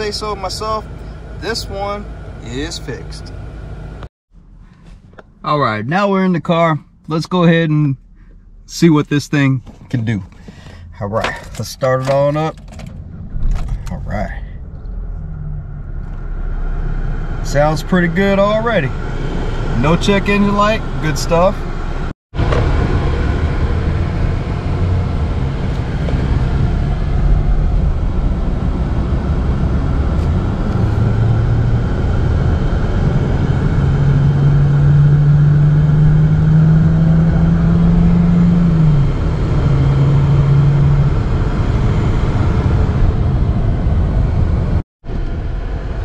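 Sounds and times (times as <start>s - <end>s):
car engine accelerating: 8.0s - 46.0s.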